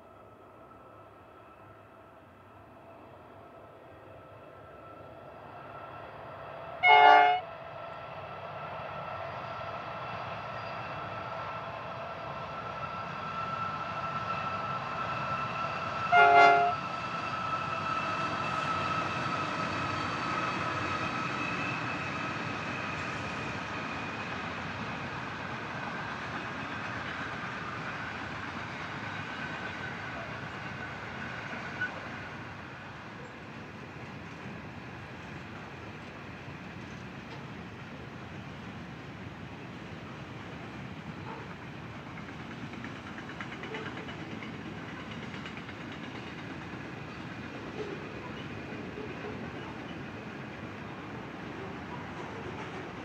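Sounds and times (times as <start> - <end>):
freight train rumble: 0.0 - 53.0
train horn blasts: 6.8 - 7.5, 16.0 - 16.9.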